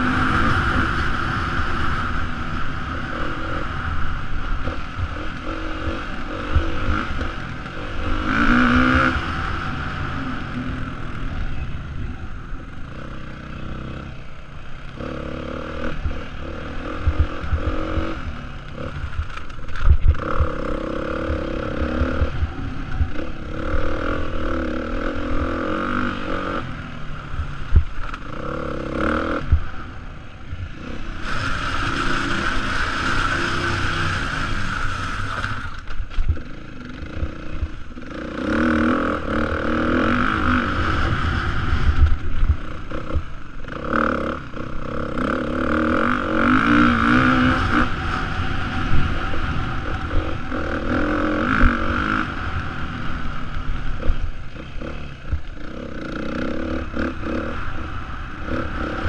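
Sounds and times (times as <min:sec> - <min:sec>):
dirt bike engine revving: 0:00.0 - 0:11.6, 0:14.8 - 0:59.0.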